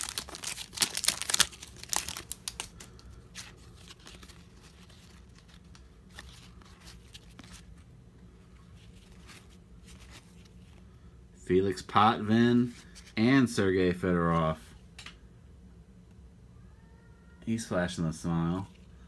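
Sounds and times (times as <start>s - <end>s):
foil wrapper tearing and crinkling: 0.0s - 7.7s
cards rustling and ticking: 0.0s - 10.9s.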